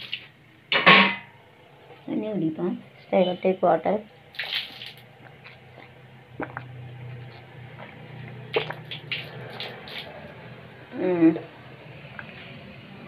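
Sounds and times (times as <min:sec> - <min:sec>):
kitchen things knocking: 0:00.7 - 0:01.3.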